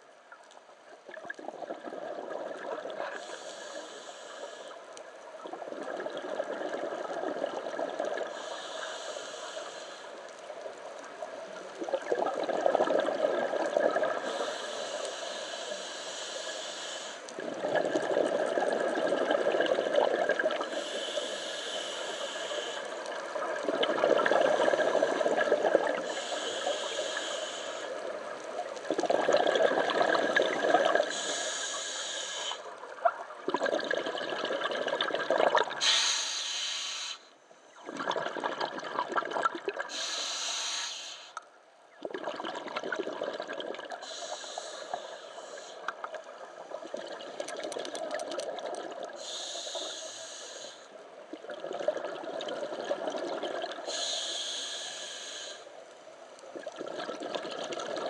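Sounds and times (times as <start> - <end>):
steady rushing hiss: 8.3 - 11.7, 14.3 - 17.4, 20.7 - 23.4, 26.0 - 28.7, 31.1 - 32.8, 39.9 - 41.4, 44.0 - 45.9, 49.2 - 51.2, 53.9 - 56.4
diver exhaling bubbles: 17.4 - 20.7, 28.9 - 31.2, 33.5 - 35.8.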